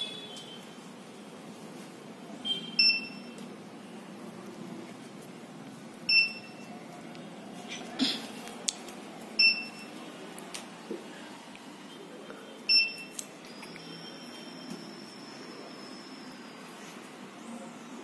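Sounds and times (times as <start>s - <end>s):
high-pitched electronic beeps: 2.5s - 3.4s, 6.1s - 6.7s, 12.7s - 16.5s.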